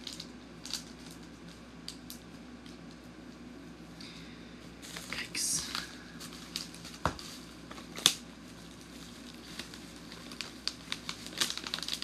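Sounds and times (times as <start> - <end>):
plastic pouch crinkling: 0.0 - 2.0, 4.8 - 12.0.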